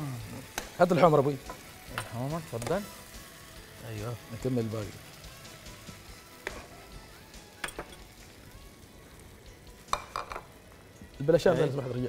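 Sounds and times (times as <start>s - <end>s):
food sizzling in a frying pan: 0.0s - 12.0s
spoon clinking against pan: 7.6s - 8.1s.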